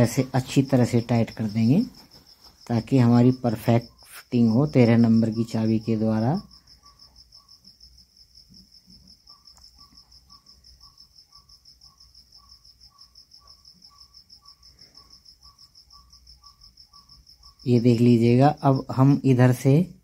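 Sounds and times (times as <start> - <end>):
insect chirping: 0.0 - 20.0.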